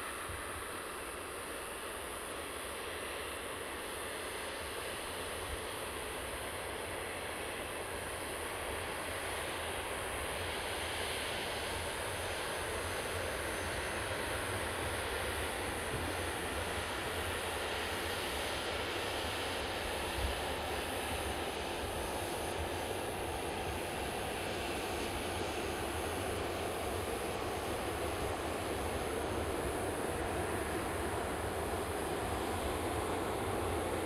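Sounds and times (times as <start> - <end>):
jet engines rushing: 10.0 - 34.0.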